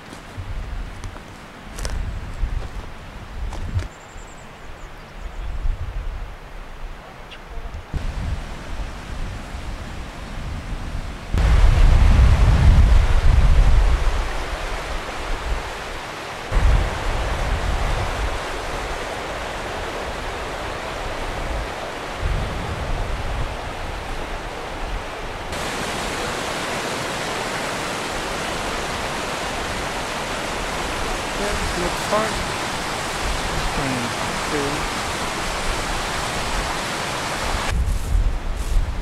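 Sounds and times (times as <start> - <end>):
wind rumble on microphone: 0.3 - 4.0, 4.6 - 31.4, 32.4 - 39.0
river rushing over rocks: 13.8 - 22.3, 23.1 - 37.7.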